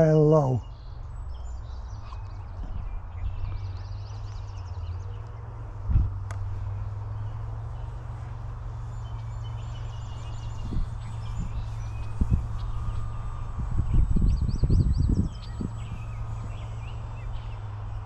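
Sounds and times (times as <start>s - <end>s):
wind buffeting microphone: 1.0s - 18.0s
low thumps: 5.8s - 6.5s.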